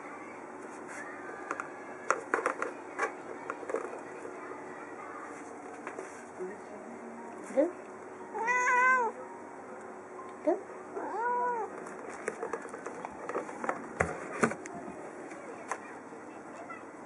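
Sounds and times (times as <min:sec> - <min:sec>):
cat meowing: 0:08.3 - 0:09.2, 0:11.0 - 0:11.7
cardboard box and plastic rustling: 0:11.7 - 0:15.0.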